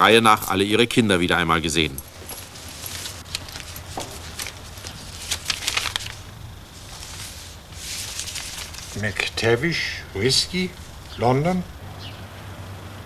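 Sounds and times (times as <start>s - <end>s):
steady low hum: 0.0s - 13.0s
paper rustling: 2.2s - 9.5s.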